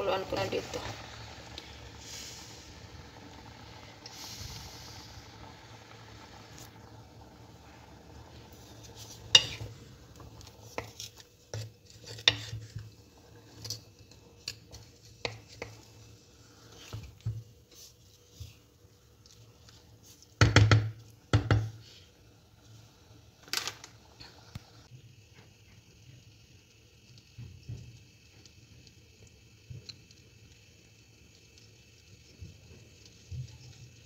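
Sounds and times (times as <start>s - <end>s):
spatula scraping metal pot: 8.6s - 9.8s, 10.4s - 12.9s.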